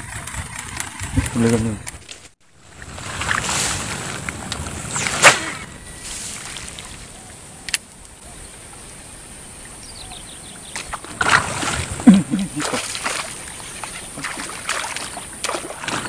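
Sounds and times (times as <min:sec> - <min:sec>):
outdoor noise: 0:00.0 - 0:16.0
fishing rod cast swish: 0:03.2 - 0:05.8.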